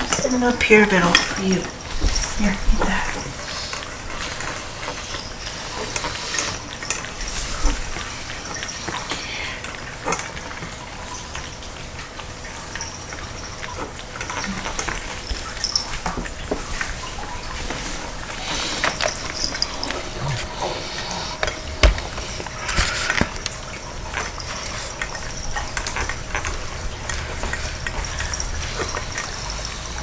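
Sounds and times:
cats chewing and smacking: 0.0s - 30.0s.

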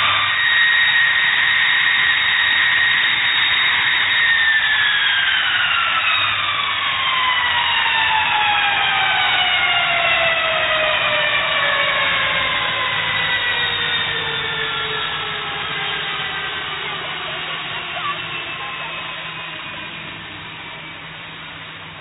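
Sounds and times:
jet engines whining down: 0.0s - 22.0s.

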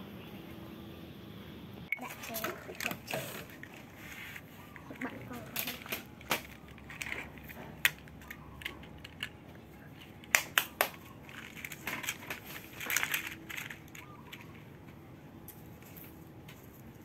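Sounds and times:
plastic toy pieces clicking: 4.8s - 14.6s.

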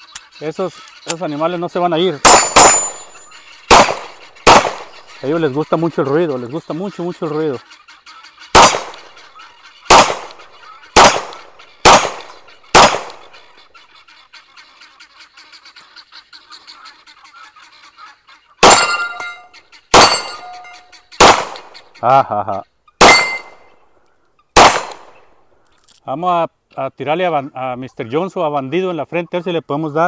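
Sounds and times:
pistol shots: 2.2s - 5.2s, 8.5s - 9.2s, 9.9s - 13.4s, 18.6s - 20.6s, 21.2s - 21.8s, 23.0s - 23.8s, 24.6s - 25.4s
steel plates ringing: 2.3s - 3.5s, 18.6s - 20.9s, 23.0s - 23.7s.

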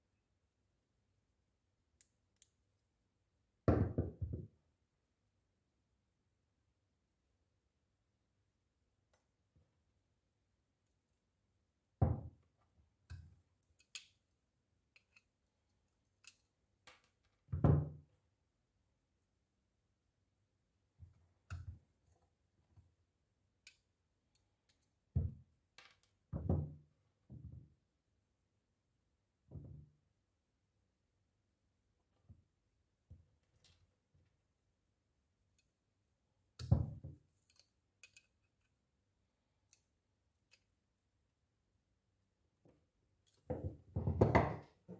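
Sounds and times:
light clicks of pliers handled: 37.4s - 38.8s.

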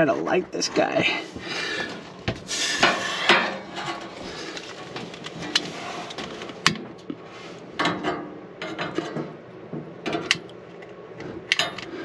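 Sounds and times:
gas hiss: 2.5s - 3.3s.

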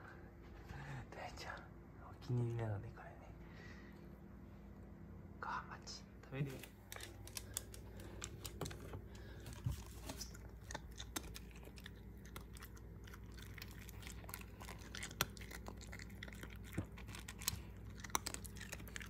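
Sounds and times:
dog crunching dry kibble: 6.6s - 19.0s.

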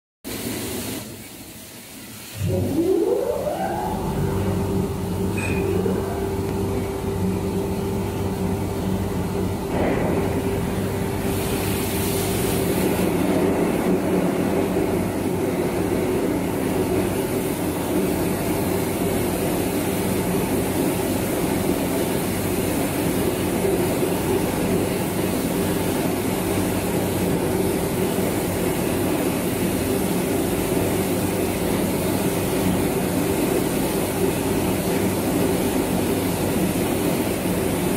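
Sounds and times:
machine hiss: 0.3s - 37.9s
machine hum: 2.2s - 37.9s.

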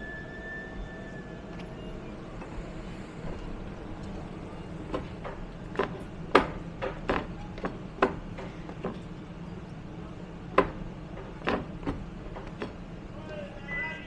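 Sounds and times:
steady low hum: 0.0s - 14.0s
footsteps on metal step: 4.8s - 9.2s, 10.5s - 12.8s.

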